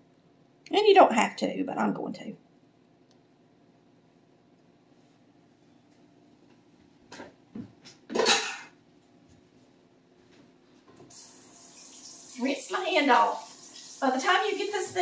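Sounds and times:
kitchen tap running: 11.1 - 15.0.

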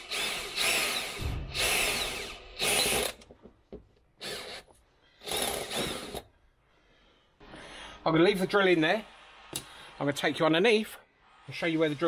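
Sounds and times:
cordless drill bursts: 0.0 - 3.2, 4.2 - 6.3.

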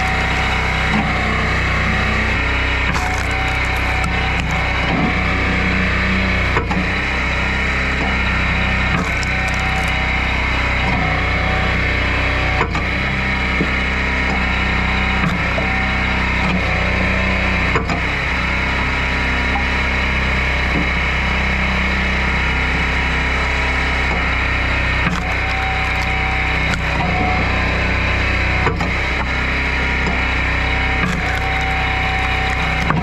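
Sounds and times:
engine running: 0.0 - 33.0
wood splitting cracks and knocks: 2.7 - 5.2, 8.8 - 10.1, 24.9 - 27.4, 30.8 - 33.0.

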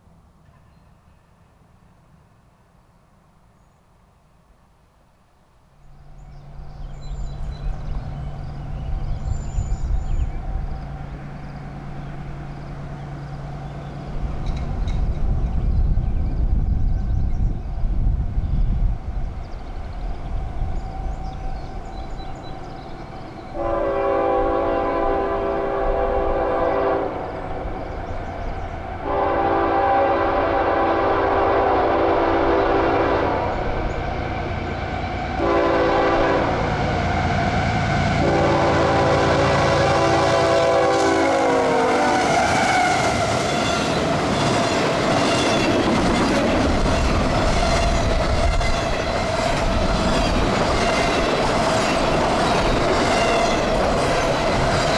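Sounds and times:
train rumbling by: 5.8 - 54.9
wheels clattering on rails: 14.3 - 15.9, 43.0 - 54.9
locomotive horn blasts: 23.6 - 27.3, 29.0 - 33.7, 35.4 - 43.2.

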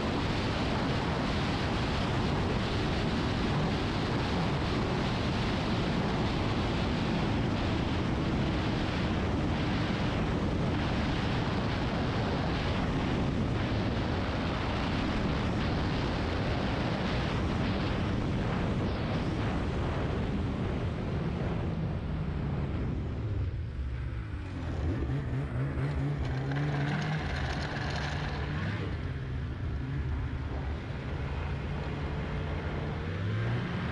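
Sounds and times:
dense rushing noise: 0.0 - 33.9
snowmobile engine running: 24.4 - 33.6.

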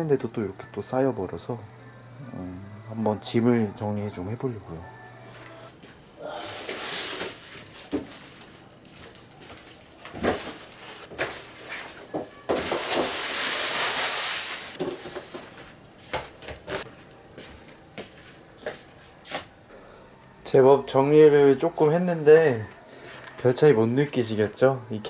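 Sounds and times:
rustling of clothes and bags: 5.4 - 19.6.

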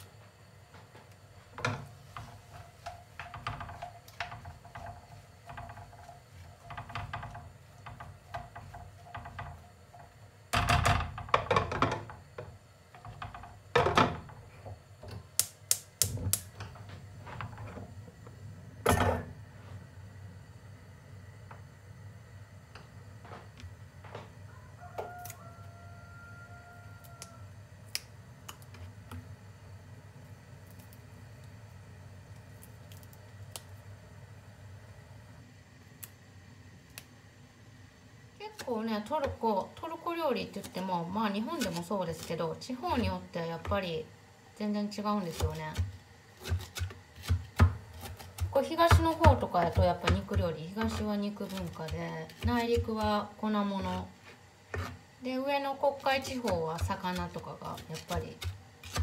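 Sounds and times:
faint steady whine: 0.0 - 59.0
low steady hum: 0.0 - 59.0
onions frying in oil: 1.2 - 16.7, 30.4 - 59.0
herbs tapping on cutting board: 45.7 - 53.2.

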